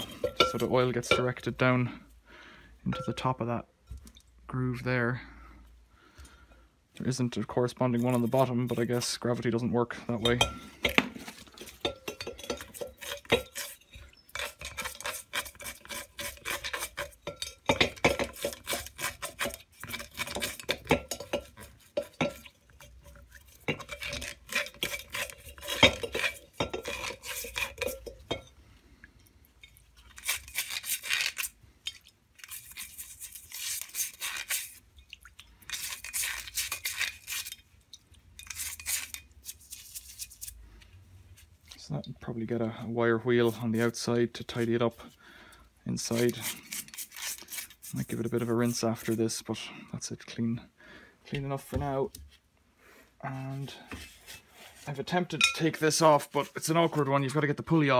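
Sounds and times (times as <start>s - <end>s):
metal clinking against glass bowl: 0.0s - 1.4s, 2.9s - 3.2s, 10.2s - 11.0s, 11.7s - 14.6s, 17.2s - 18.6s, 55.4s - 55.7s
brush scrubbing: 7.8s - 9.7s, 11.2s - 17.3s, 18.2s - 28.1s, 32.4s - 34.8s, 35.7s - 37.6s, 38.4s - 40.6s, 46.0s - 49.3s.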